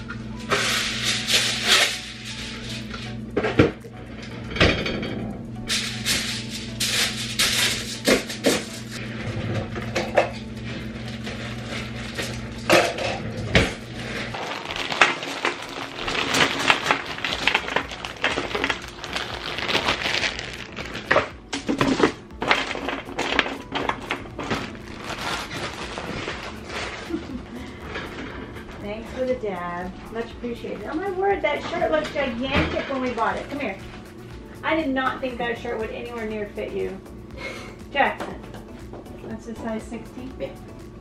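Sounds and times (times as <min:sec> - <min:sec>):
plastic bag rustling: 0:00.4 - 0:02.9, 0:05.7 - 0:29.0
foil crinkling: 0:00.4 - 0:03.0, 0:05.7 - 0:12.9, 0:14.0 - 0:28.3.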